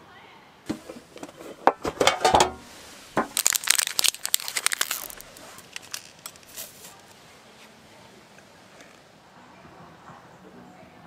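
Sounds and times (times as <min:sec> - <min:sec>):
metal tin lid clattering: 0:00.7 - 0:03.4
plastic wrappers crinkling: 0:03.2 - 0:07.2.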